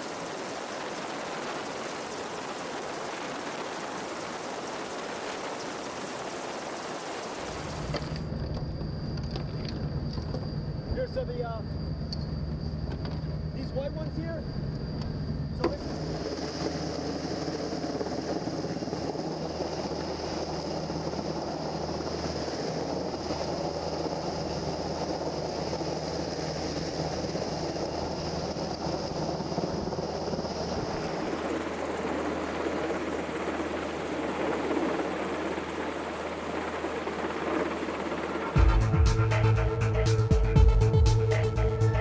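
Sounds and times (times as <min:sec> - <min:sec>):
helicopter rotor and engines: 0:00.0 - 0:42.0
high whine: 0:37.5 - 0:42.0.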